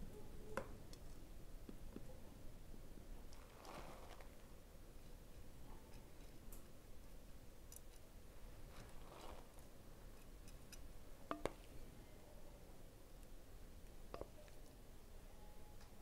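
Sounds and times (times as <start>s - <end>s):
spoon scraping: 7.7s - 11.5s.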